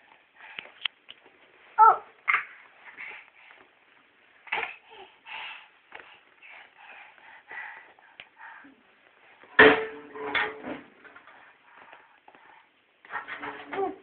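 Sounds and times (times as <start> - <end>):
small drum hits ringing: 9.6 - 10.7.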